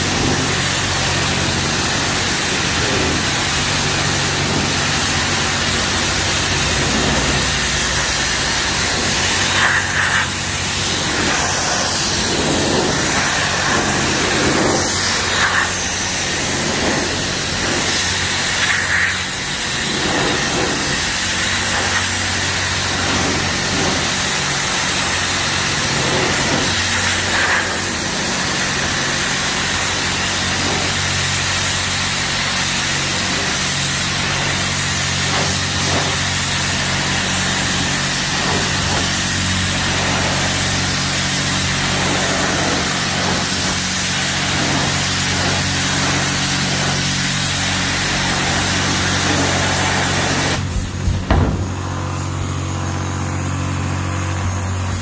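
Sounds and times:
steady low hum: 0.0s - 29.0s, 48.0s - 55.0s
pressure washer spraying water: 0.0s - 55.0s.

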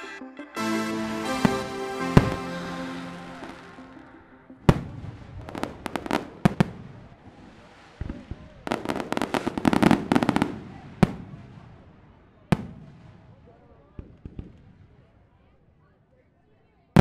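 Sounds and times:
fireworks bangs and cracks: 7.6s - 11.8s.

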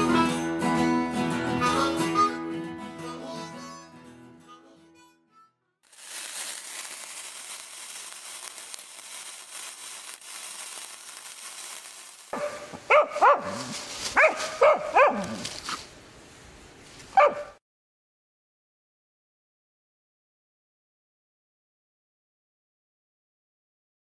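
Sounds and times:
lit fuse hissing: 5.8s - 12.9s
dog barking: 12.3s - 15.4s, 17.2s - 17.6s.

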